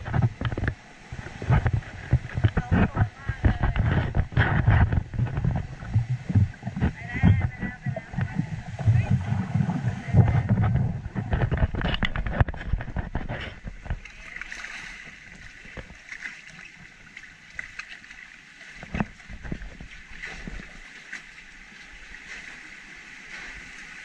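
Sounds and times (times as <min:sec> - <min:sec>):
water rushing and lapping: 0:00.0 - 0:24.0.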